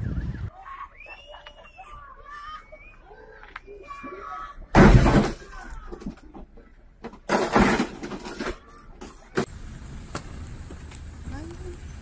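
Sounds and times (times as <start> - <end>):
car crash crunch: 4.7 - 6.2, 7.1 - 10.9.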